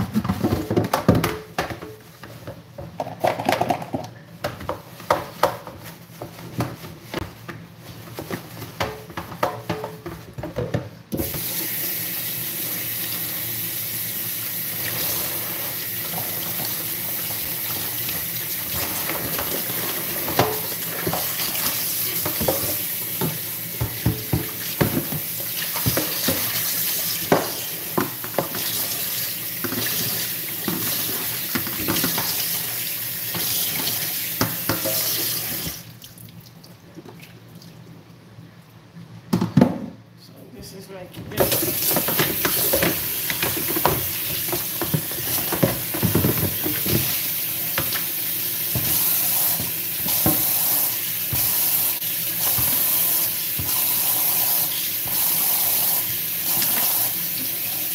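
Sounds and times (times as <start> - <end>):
plastic basins knocking in sink: 0.0 - 7.3, 8.2 - 11.4, 16.0 - 32.6, 41.3 - 50.6
kitchen tap running: 11.1 - 36.6, 41.4 - 57.9.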